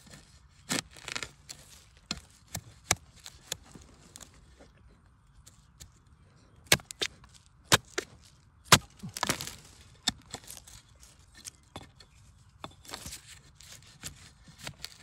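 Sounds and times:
dry leaves crackling: 6.8 - 11.2
knife chopping bamboo: 7.7 - 8.1, 8.7 - 10.6.

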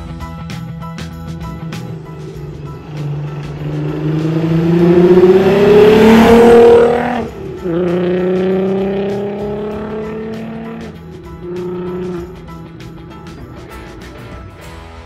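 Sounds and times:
car engine accelerating past: 1.4 - 12.3.

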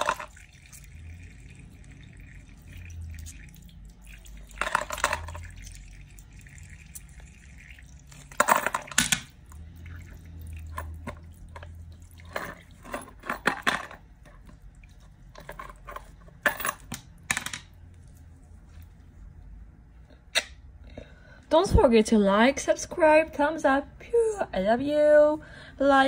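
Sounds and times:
wet squelching and splashing: 0.3 - 4.6.

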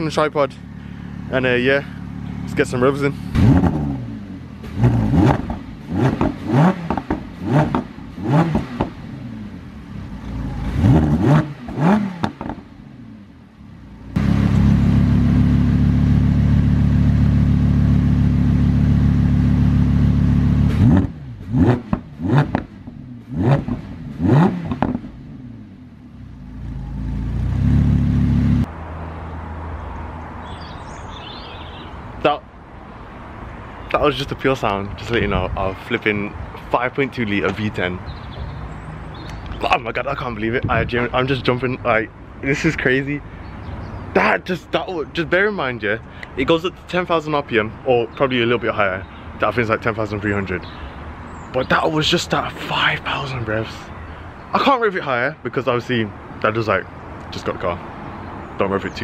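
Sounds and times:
car engine idling: 0.0 - 10.9, 12.4 - 20.8
sports car engine revving: 0.6 - 28.8.

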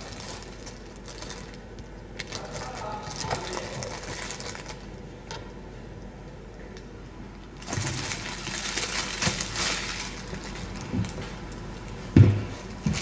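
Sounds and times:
plastic packaging crinkling: 0.0 - 5.0, 7.6 - 12.0.

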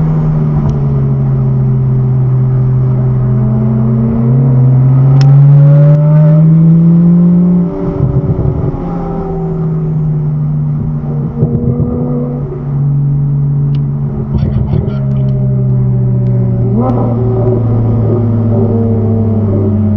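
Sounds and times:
car engine accelerating: 0.0 - 19.9
exhaust crackling: 7.8 - 19.9.

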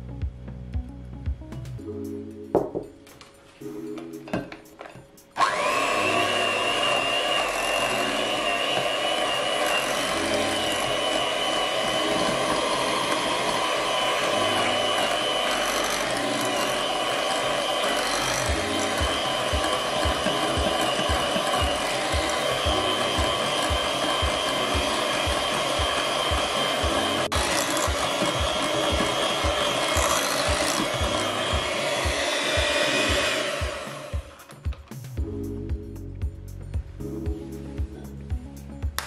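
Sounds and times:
electric mixer running: 5.4 - 35.0.

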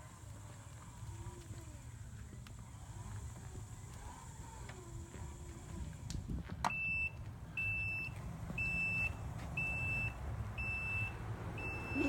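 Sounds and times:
high reverse warning beeps: 6.7 - 12.0.

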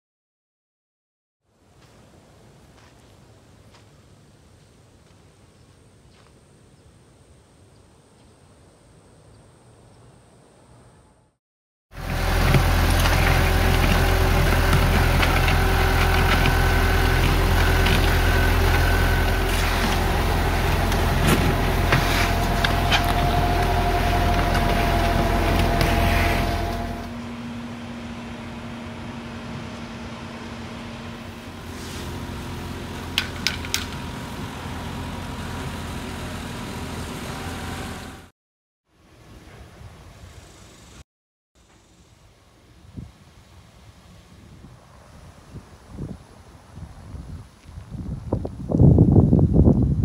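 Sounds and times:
machine engine running: 12.0 - 38.3.

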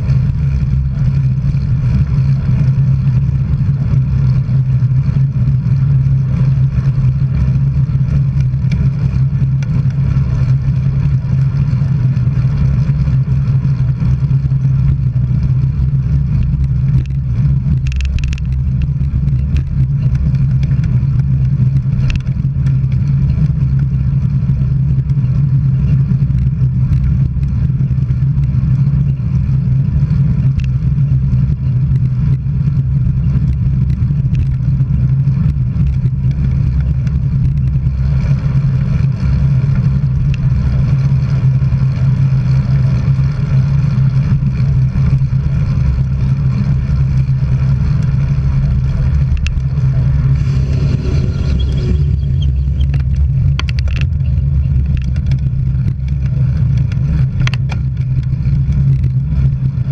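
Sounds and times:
road and wind noise: 0.0 - 59.9
faint ticks: 16.3 - 23.8.

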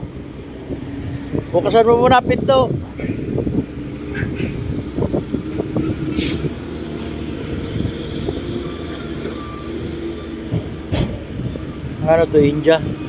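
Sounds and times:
truck engine idling: 0.0 - 13.0
short air hiss: 6.1 - 6.6.

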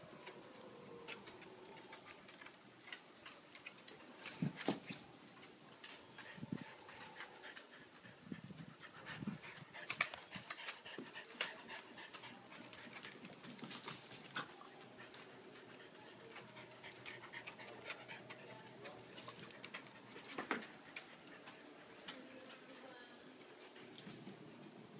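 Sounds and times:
dogs panting: 5.8 - 22.8.

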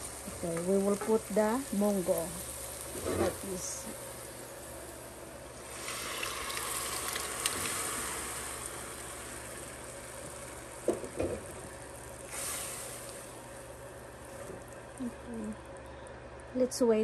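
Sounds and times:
pan hissing and sizzling: 0.0 - 16.4
liquid poured into pan: 5.6 - 15.0.

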